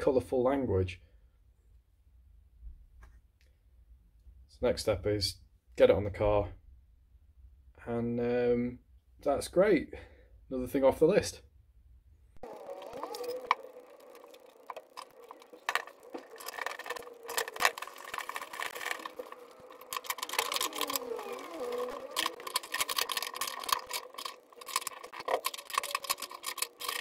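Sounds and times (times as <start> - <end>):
tools clicking and scraping on metal: 12.4 - 27.0.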